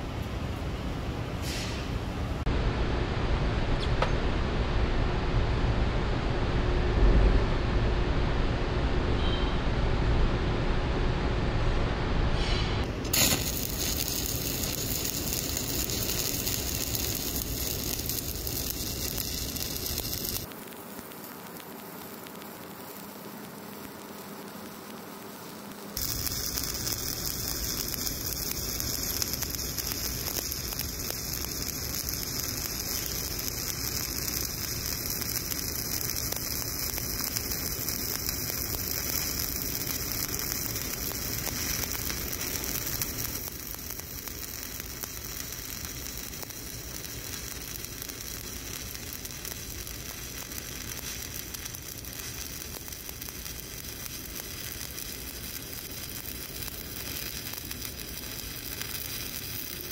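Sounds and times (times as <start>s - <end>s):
welding arc crackle and sizzle: 12.8s - 59.9s.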